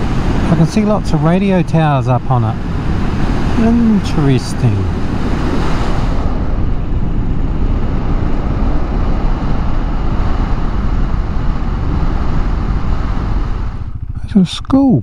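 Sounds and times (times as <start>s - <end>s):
wind rush over microphone: 0.0s - 14.4s
motorcycle engine running: 4.9s - 15.0s.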